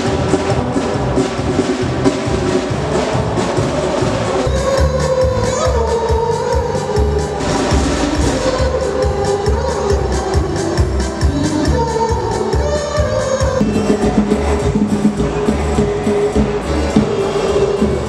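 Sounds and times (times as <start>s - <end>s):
bass drum beat: 0.0s - 5.5s, 13.6s - 18.0s
trumpets and horns playing: 0.0s - 18.0s.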